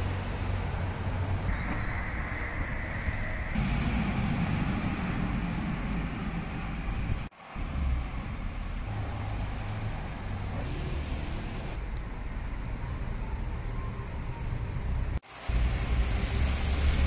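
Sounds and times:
low outdoor rumble: 0.0 - 16.1.

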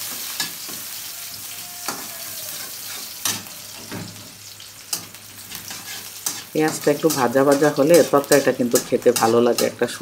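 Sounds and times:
onion sizzling in hot oil: 0.0 - 10.0
metal turner scraping a pan: 1.9 - 4.3, 4.9 - 10.0.

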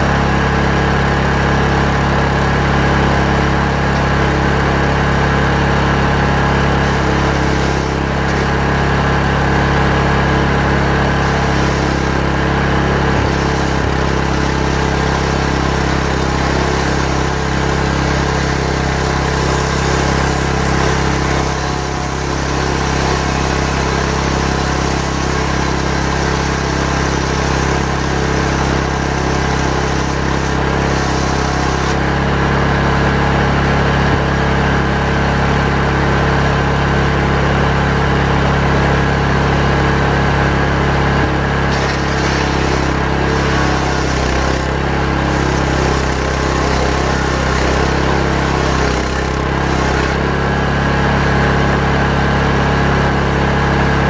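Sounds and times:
chainsaw ripping a log: 2.8 - 32.5, 40.8 - 52.0.

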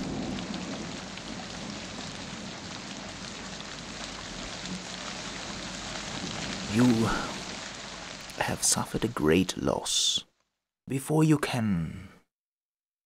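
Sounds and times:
rain falling: 0.0 - 11.2.

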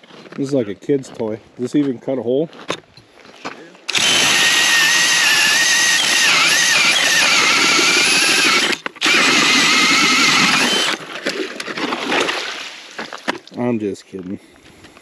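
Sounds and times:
cordless drill motor whine: 3.9 - 11.0.

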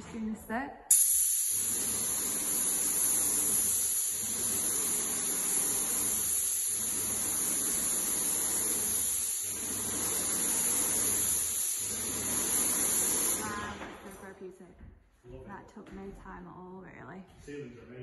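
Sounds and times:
paint sprayer hissing: 0.9 - 14.0.

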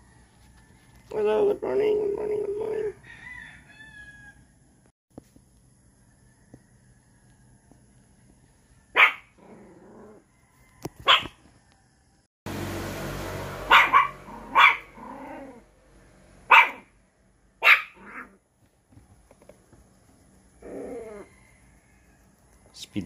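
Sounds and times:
dog barking: 8.9 - 9.4, 11.0 - 11.4, 13.7 - 15.0, 16.4 - 16.9, 17.6 - 18.4.

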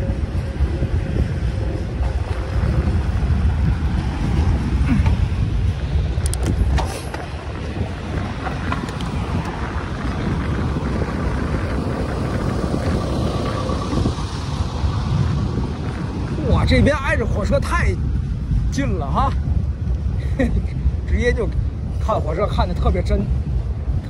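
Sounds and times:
sharp clicks of train: 6.2 - 7.3.

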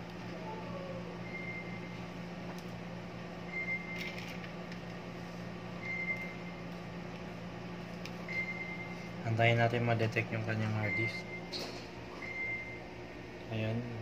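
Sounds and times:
fan and hard disk hum: 0.0 - 14.0.

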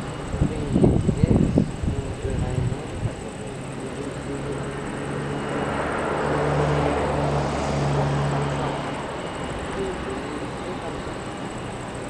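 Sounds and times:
distant jet engine rumble: 0.0 - 12.0.

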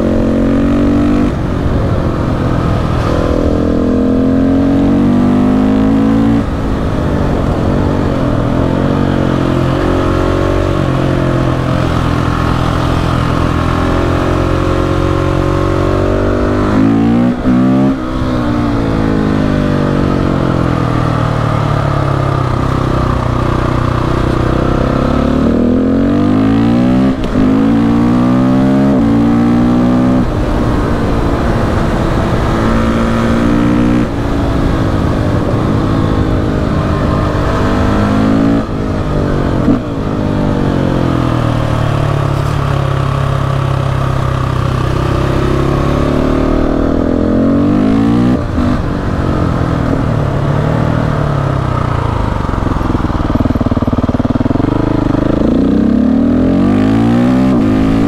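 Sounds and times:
wind rush: 0.0 - 21.0, 29.6 - 43.1
motorcycle engine revving: 0.0 - 58.0.

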